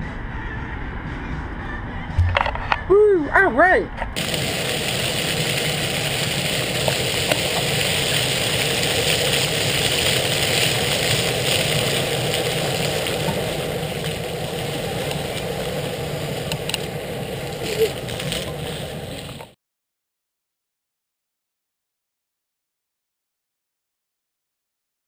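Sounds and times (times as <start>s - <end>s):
fountain water splashing on paving: 4.2s - 19.6s.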